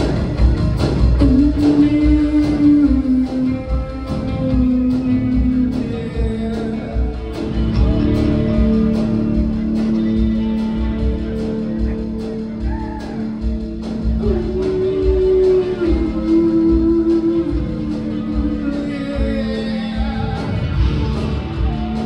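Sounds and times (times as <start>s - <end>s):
bass guitar: 0.0s - 22.0s
drums steady beat: 0.0s - 22.0s.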